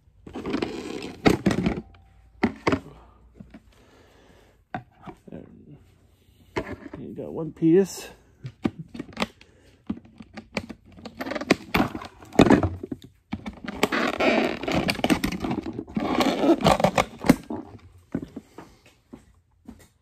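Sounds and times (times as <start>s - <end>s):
packaging crinkling and scraping: 0.3s - 2.6s.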